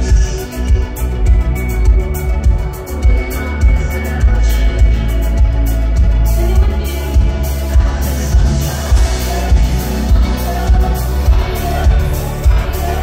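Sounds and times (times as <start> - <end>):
live pop band playing: 0.0 - 13.0
woman singing: 6.3 - 13.0.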